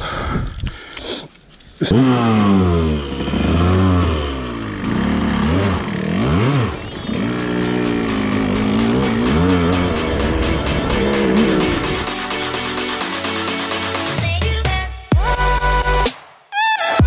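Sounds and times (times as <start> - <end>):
dirt bike engine revving: 1.8 - 13.0.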